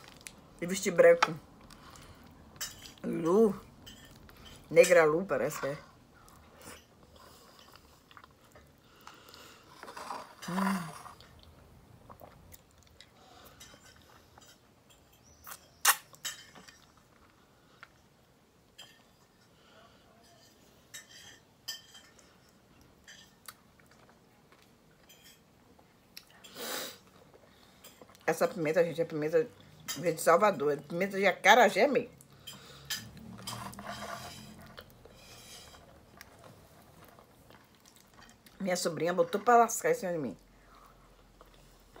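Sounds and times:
chewing and finger-sucking: 34.5s - 38.6s.

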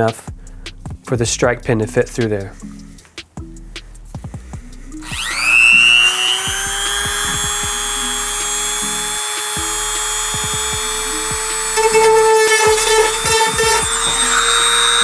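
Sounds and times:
rotary tool sanding whine: 5.0s - 15.0s.

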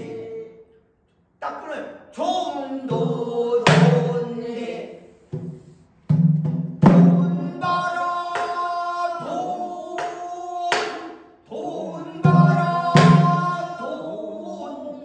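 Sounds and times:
man singing: 2.1s - 5.1s, 6.9s - 15.0s.

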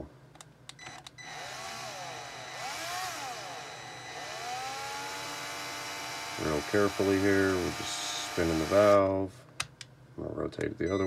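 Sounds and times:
cordless drill motor whine: 0.8s - 9.0s.

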